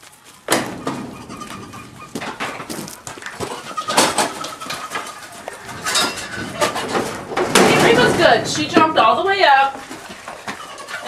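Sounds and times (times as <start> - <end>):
goat hooves clattering on stand: 0.0 - 11.0
goats bleating: 1.1 - 2.2, 3.1 - 7.0.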